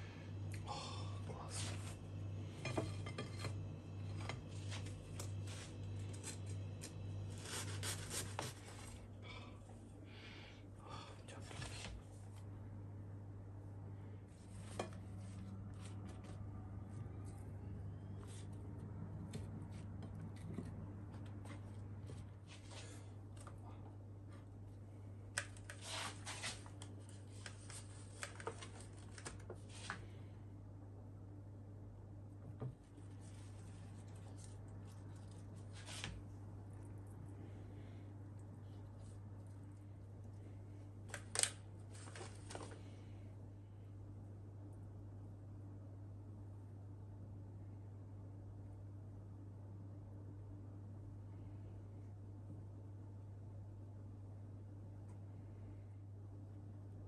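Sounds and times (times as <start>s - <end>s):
steady low hum: 0.0s - 57.0s
knife sawing through bread: 7.3s - 8.8s.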